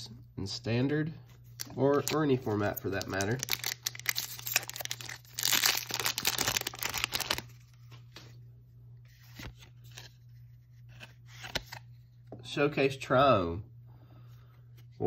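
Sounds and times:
foil wrapper tearing and crinkling: 1.6s - 7.5s.

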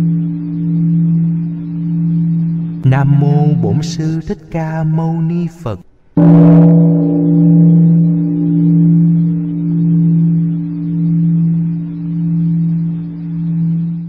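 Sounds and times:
temple bell ringing: 6.2s - 10.0s.

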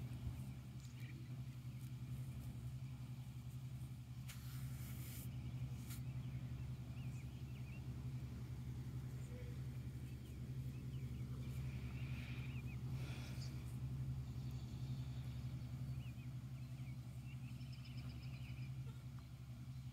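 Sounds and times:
faint bird chirps: 9.0s - 19.9s.

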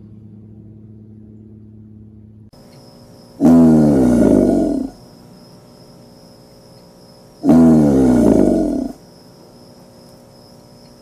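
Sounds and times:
faint steady hiss: 2.6s - 11.0s
alligator bellowing: 3.3s - 5.0s, 7.4s - 9.0s.

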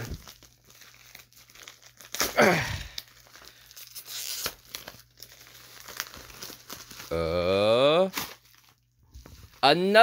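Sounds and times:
plastic mailer crinkling and tearing: 0.0s - 10.0s
tape being torn off: 3.9s - 4.9s.

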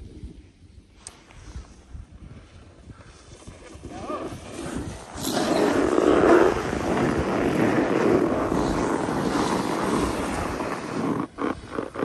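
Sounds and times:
wind on microphone: 0.0s - 12.0s
snowboard scraping over snow: 3.1s - 12.0s.

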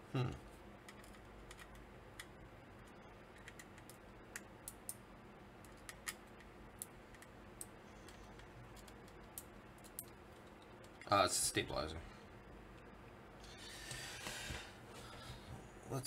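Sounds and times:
small parts clicking and tapping: 0.8s - 5.0s, 5.6s - 11.1s.

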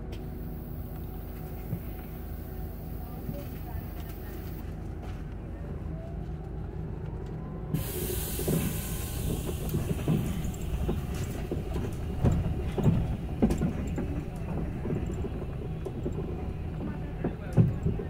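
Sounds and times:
bus road rumble: 0.0s - 18.0s.

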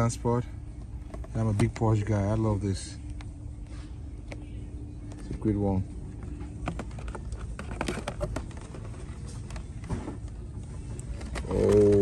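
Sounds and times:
steady low hum: 0.0s - 12.0s
plastic blister packs clicking: 11.0s - 12.0s.

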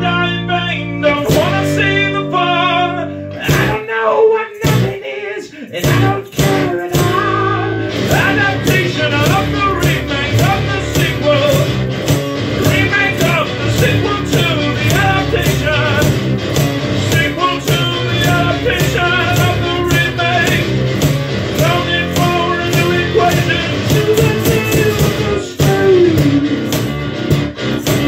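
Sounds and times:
man singing: 0.0s - 11.8s, 12.5s - 16.2s, 16.9s - 20.9s, 21.5s - 26.7s
classical guitar playing: 25.2s - 27.8s.

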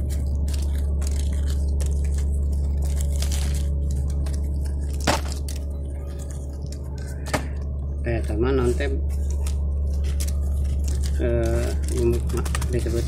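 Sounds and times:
seeds crackling and rustling by hand: 0.0s - 7.2s
steady low hum: 0.0s - 13.0s.

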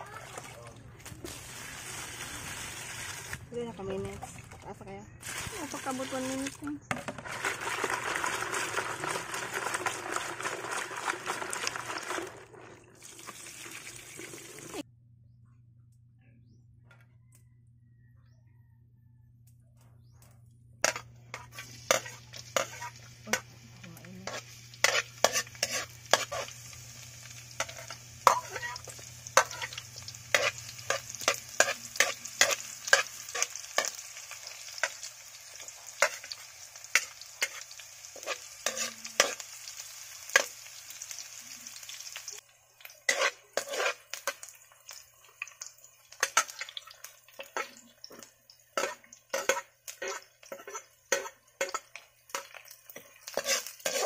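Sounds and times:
hot oil sizzling in a wok: 1.2s - 3.4s, 5.2s - 11.8s, 20.8s - 54.0s
metal ladle scraping a pan: 20.8s - 23.4s, 24.2s - 26.6s, 27.6s - 34.0s, 35.9s - 39.4s, 43.1s - 44.4s, 48.8s - 54.0s.

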